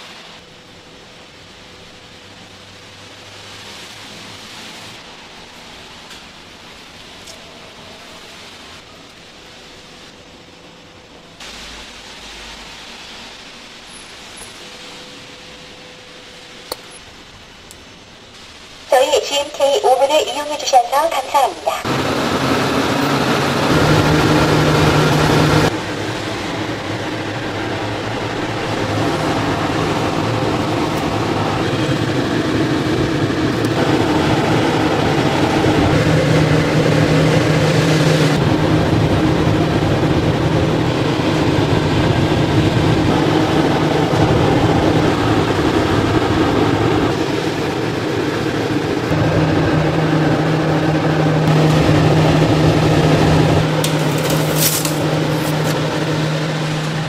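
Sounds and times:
low drone: 14.6s - 57.0s
oven fans and belt humming: 21.9s - 57.0s.

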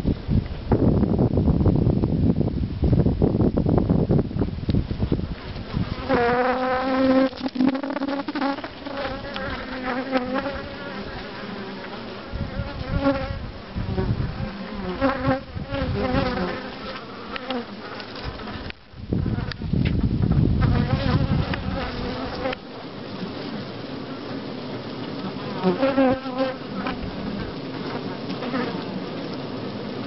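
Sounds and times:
bee wingbeat buzz: 5.4s - 24.4s, 25.1s - 29.4s
bee colony buzzing: 5.5s - 19.6s, 20.6s - 30.0s.

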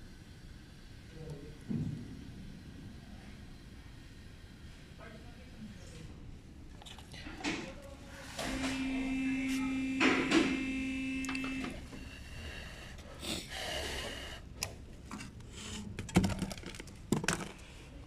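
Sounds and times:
small electric motor whirring: 8.4s - 11.8s.

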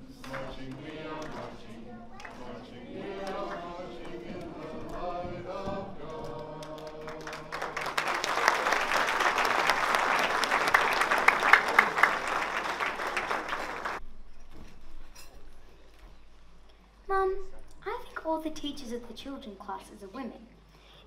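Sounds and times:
group of voices singing: 0.0s - 8.1s
audience applause: 6.1s - 14.0s.

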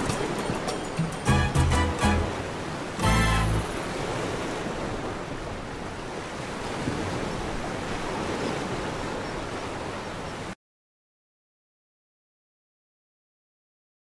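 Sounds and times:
aquarium water rushing: 0.0s - 10.6s.

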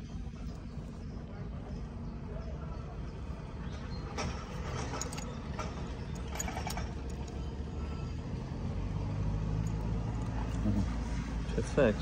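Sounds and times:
metal parts clicking: 4.2s - 7.5s.

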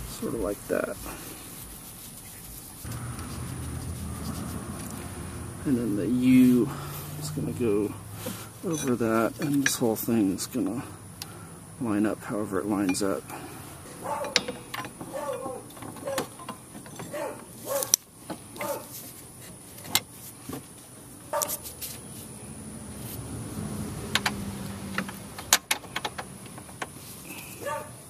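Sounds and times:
metal brackets clicking and knocking: 8.6s - 9.9s, 12.7s - 13.3s, 13.9s - 18.8s, 24.0s - 27.0s.

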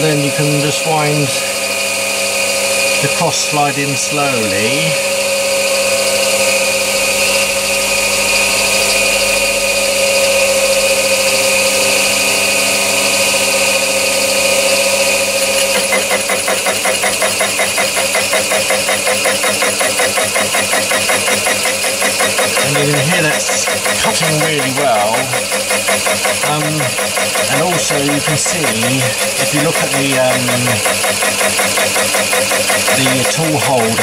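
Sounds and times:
person speaking: 0.0s - 1.5s, 3.0s - 5.0s, 22.6s - 25.5s, 26.4s - 30.9s, 32.9s - 34.0s
lathe motor and gear whine: 0.0s - 34.0s
saw cutting with fast pulsing: 0.0s - 34.0s.

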